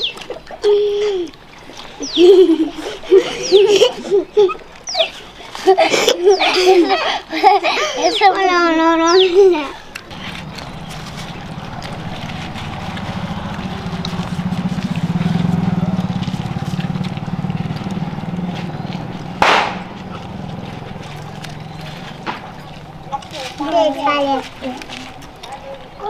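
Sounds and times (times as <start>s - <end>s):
vehicle engine passing by: 8.9s - 26.0s.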